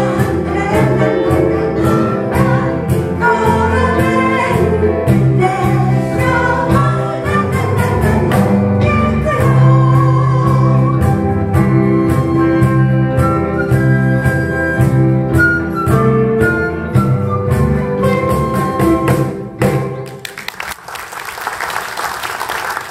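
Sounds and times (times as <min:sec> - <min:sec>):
person singing: 0:00.0 - 0:11.2
small band playing pop song: 0:00.0 - 0:20.4
audience applause: 0:20.0 - 0:22.9.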